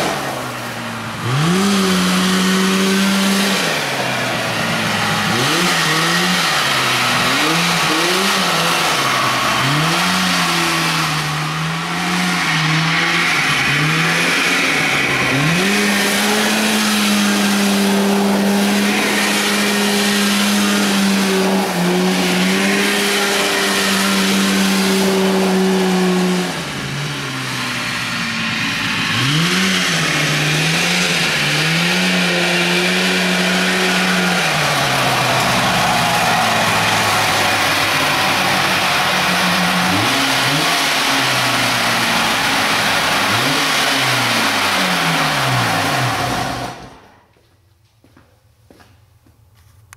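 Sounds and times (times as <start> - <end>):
riding lawn mower engine revving: 0.0 - 47.2
tyres spinning in gravel: 29.4 - 46.9.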